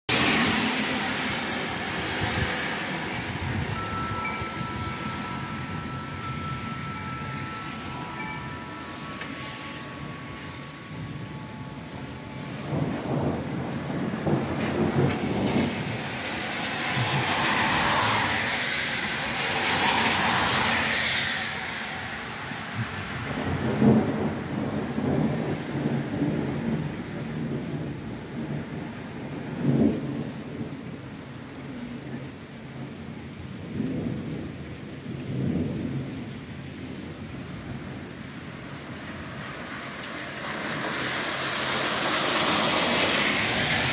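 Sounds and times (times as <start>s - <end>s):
thunder rumbling: 0.1s - 31.1s
steady rain: 0.1s - 43.9s.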